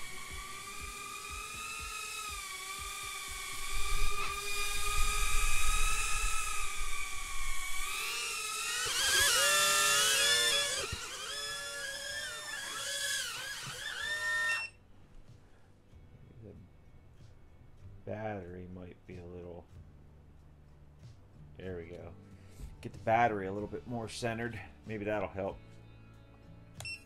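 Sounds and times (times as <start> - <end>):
micro drone motors whining: 0.0 - 14.8.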